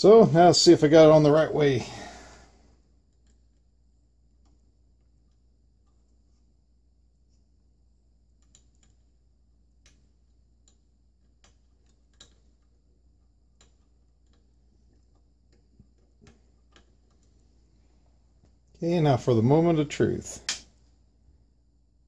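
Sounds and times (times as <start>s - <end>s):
small clicks from handling wiring: 10.6s - 12.8s, 13.5s - 17.8s.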